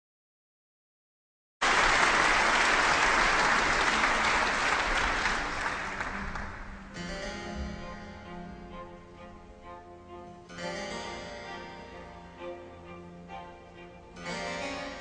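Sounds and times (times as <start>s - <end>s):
audience applauding: 1.6s - 6.9s
music: 2.6s - 15.0s.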